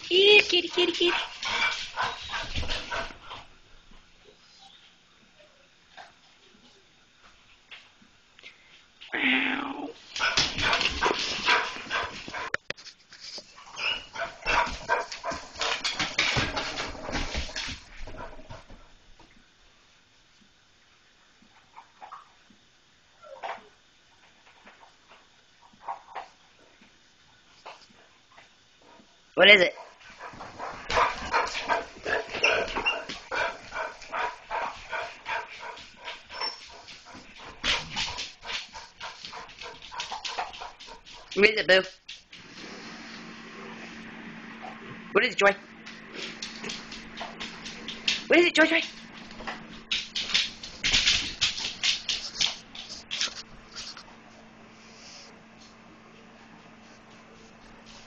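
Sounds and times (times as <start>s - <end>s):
dogs whining and barking: 13.6s - 15.1s, 30.3s - 34.3s, 36.2s - 36.9s
dogs barking rapidly: 14.1s - 15.9s, 29.8s - 41.4s.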